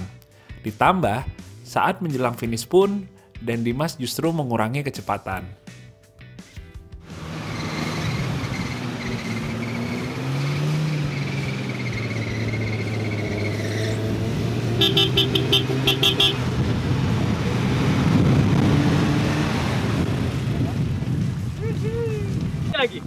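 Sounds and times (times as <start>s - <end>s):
truck engine revving under load: 7.0s - 21.0s
wheels splashing through water: 7.1s - 13.1s
car horn short toots: 14.8s - 16.5s.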